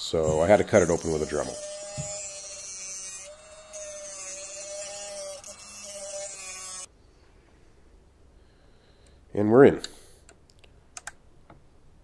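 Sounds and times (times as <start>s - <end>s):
rotary tool cutting plastic: 0.2s - 6.9s.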